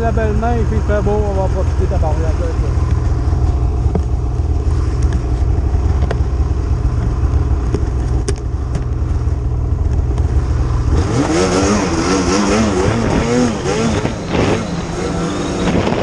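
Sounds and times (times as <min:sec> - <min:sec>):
snowmobile engine idling and revving: 0:00.0 - 0:16.0.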